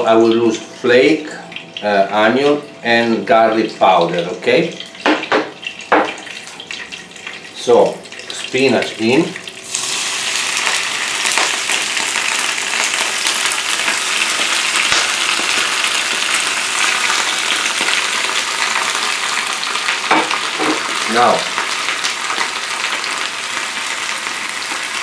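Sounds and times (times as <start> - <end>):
spinach sizzling in hot oil: 5.6 - 25.0.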